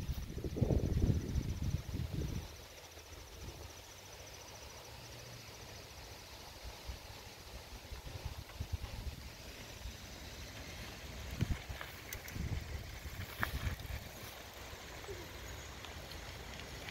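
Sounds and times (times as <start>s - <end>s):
wind buffeting microphone: 0.0s - 2.6s, 11.2s - 14.1s
high-pitched insect trill: 0.0s - 16.9s.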